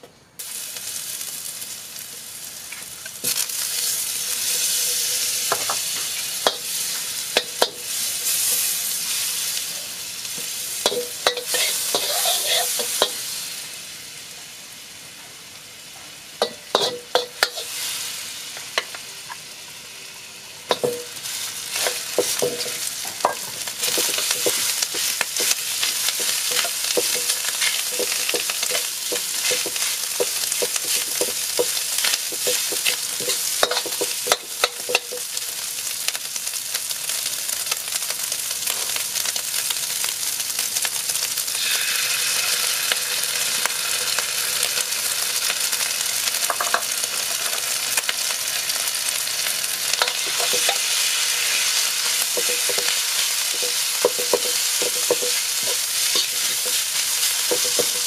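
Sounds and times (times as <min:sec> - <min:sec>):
garlic sizzling in hot oil: 0:00.4 - 0:58.0
metal ladle scraping a wok: 0:10.7 - 0:13.2, 0:16.4 - 0:18.0, 0:20.7 - 0:35.2, 0:50.0 - 0:58.0.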